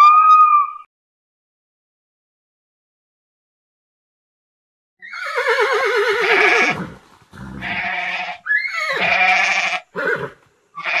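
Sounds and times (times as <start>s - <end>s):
farm animal calls: 5.0s - 11.0s.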